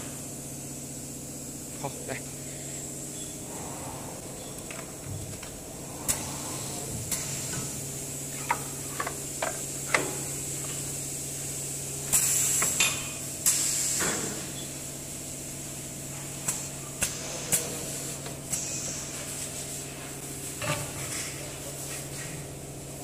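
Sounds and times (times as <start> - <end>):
low machine hum: 0.0 - 12.1
pneumatic air hiss: 2.4 - 22.4.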